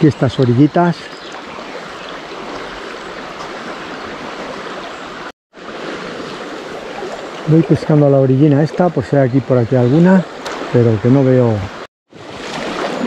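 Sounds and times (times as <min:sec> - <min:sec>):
river water rushing: 0:01.0 - 0:08.6, 0:11.7 - 0:13.0.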